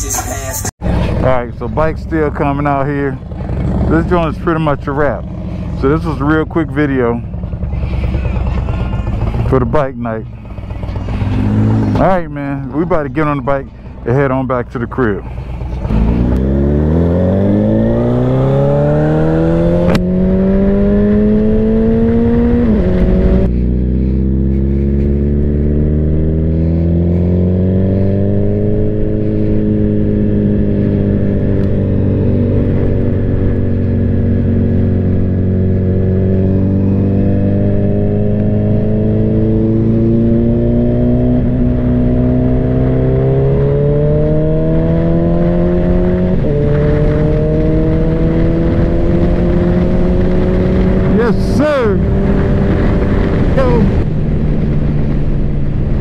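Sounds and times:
motorcycle engine accelerating: 0.8 - 56.0
wind rush: 44.2 - 56.0.

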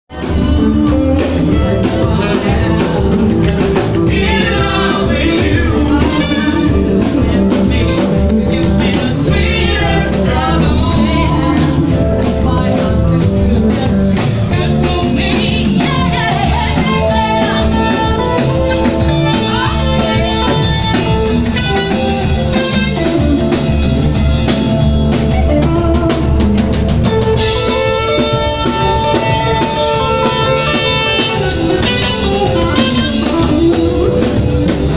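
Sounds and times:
drums: 0.0 - 34.9
person singing: 0.1 - 23.7, 27.4 - 34.9
electric guitar: 0.1 - 34.9.

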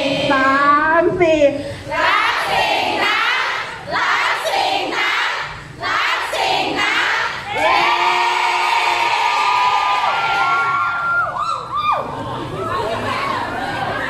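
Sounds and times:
crowd chanting: 1.9 - 9.3.

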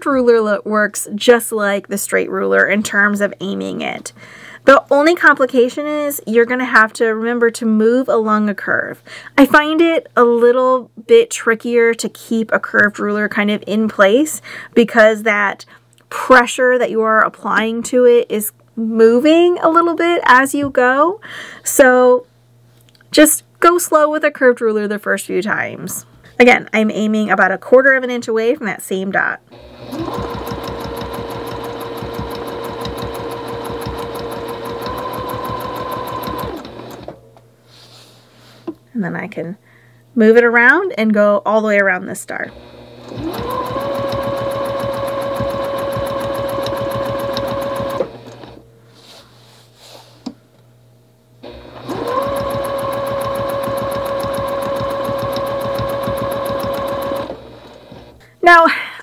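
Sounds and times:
sewing machine stitching: 29.5 - 37.2, 42.5 - 48.6, 51.4 - 58.2.

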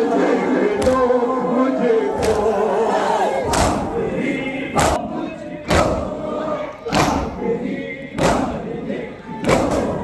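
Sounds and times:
men chanting: 0.0 - 10.0
crowd beating chests: 3.4 - 6.2.

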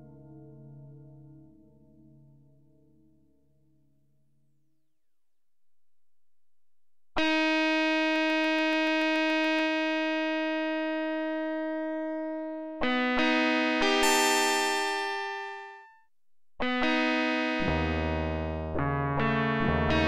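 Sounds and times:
overdriven electric guitar notes: 11.1 - 15.7, 16.6 - 20.0.

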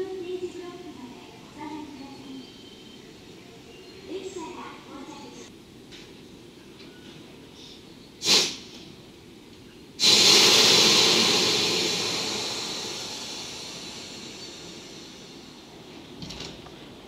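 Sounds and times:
locomotive venting compressed air: 8.2 - 8.9, 10.0 - 15.7.

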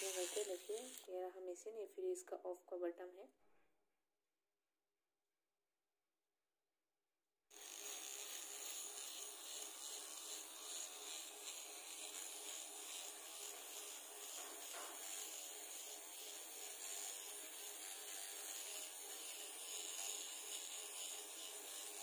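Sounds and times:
trimmer whirring on skin: 0.0 - 1.1, 7.5 - 22.0.

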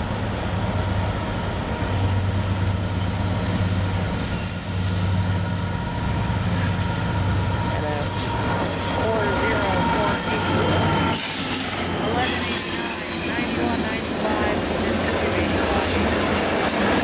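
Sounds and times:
diesel locomotive drone: 0.0 - 17.0.

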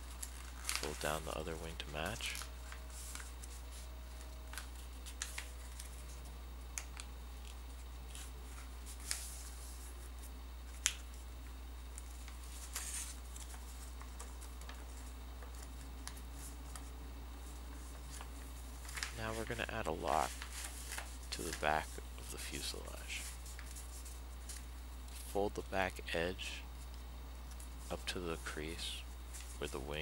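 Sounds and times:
paper crinkling and creasing: 0.0 - 11.2, 11.9 - 25.4, 27.5 - 30.0
steady low hum: 0.0 - 30.0.

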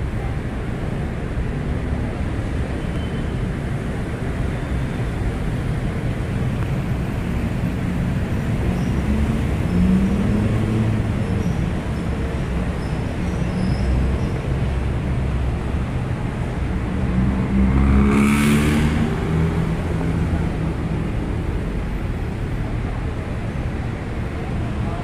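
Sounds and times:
traffic rumble: 0.0 - 25.0
vehicle passing: 16.6 - 22.2.

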